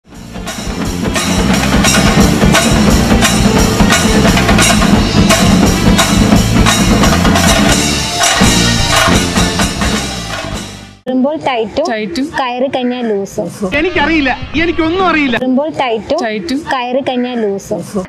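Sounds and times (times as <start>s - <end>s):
intro music with drum beat: 0.0s - 11.0s.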